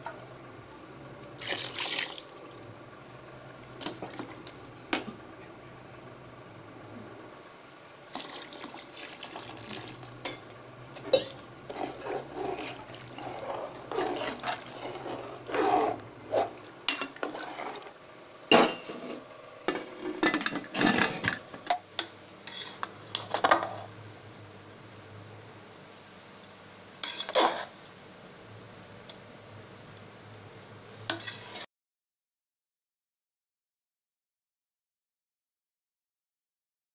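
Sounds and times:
metal spoon scraping metal pot: 11.0 - 17.9, 22.4 - 23.9, 27.0 - 27.7, 31.1 - 31.6.

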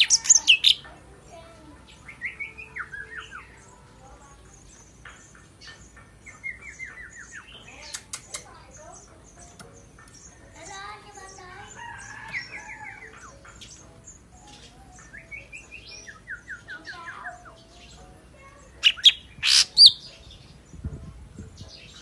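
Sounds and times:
bird singing whistled phrases: 18.8 - 20.2.

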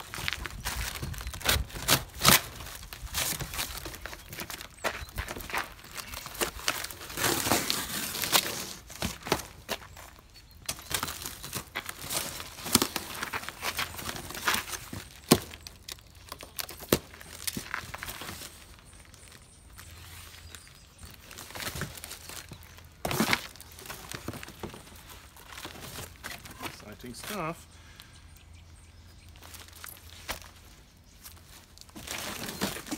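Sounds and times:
cardboard and plastic wrap tearing: 0.2 - 4.7, 5.3 - 9.5, 10.7 - 18.7, 21.0 - 26.8, 31.8 - 32.9.

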